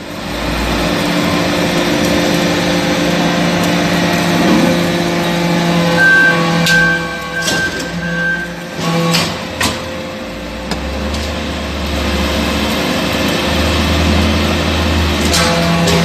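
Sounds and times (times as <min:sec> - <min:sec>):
deep low drone: 0:00.0 - 0:08.7
hydraulic press hum and hiss: 0:00.0 - 0:16.0.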